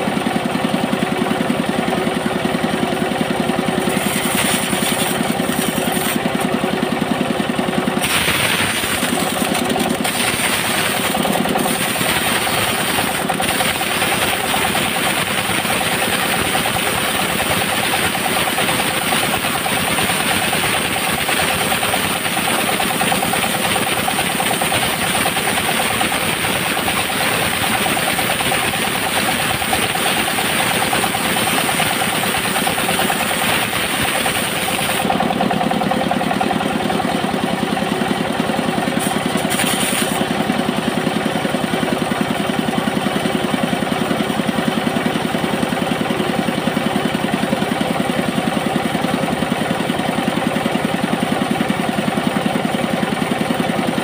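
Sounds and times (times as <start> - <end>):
bandsaw machine drone: 0.0 - 45.9
saw blade cutting hiss: 39.0 - 40.3.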